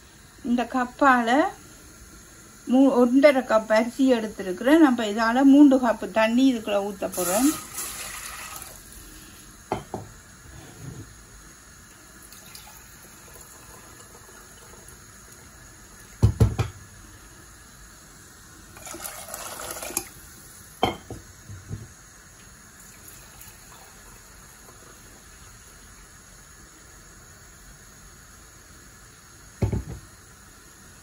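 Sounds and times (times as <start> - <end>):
water poured into metal pot: 7.1 - 9.0, 12.2 - 16.2, 18.8 - 20.2, 22.8 - 25.5.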